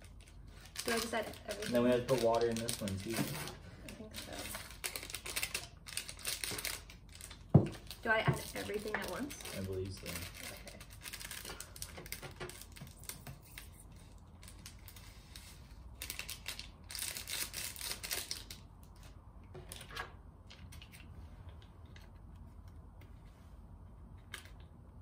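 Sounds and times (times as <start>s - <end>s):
foil sachets tearing and crinkling: 0.0s - 18.7s.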